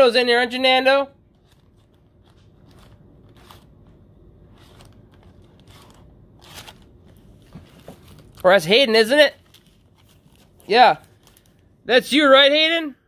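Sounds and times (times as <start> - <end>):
soft handling clicks and rustles: 9.4 - 11.7.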